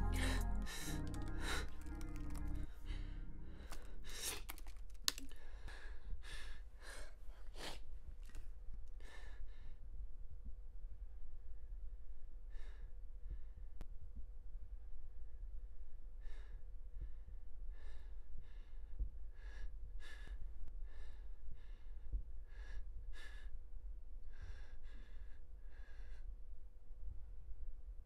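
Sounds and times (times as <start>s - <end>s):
steady low hum: 0.0s - 4.2s
person breathing sharply: 0.0s - 4.5s.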